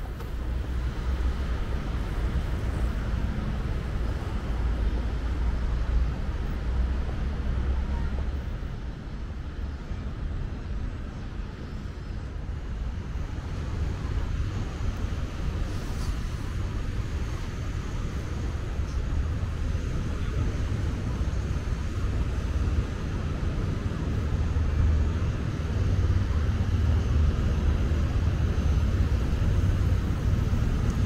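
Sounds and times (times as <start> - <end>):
traffic rumble: 0.0 - 31.0.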